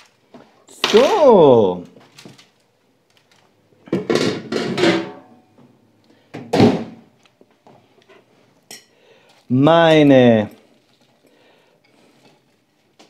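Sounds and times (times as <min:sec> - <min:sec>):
metal baking tray clattering: 0:04.0 - 0:05.2.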